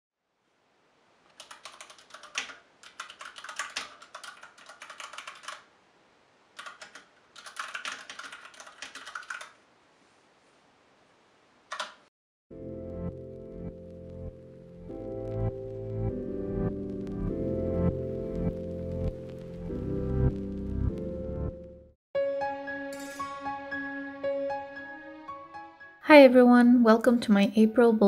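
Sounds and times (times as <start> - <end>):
mechanical keyboard typing: 1.4 - 5.7, 6.6 - 9.6, 11.7 - 12.0
music: 12.5 - 28.0.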